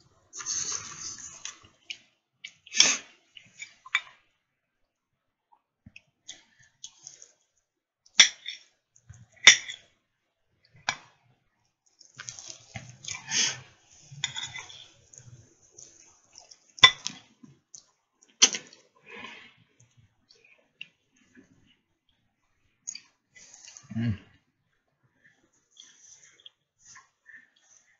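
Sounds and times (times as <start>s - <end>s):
person chewing: 12.1s - 17.4s.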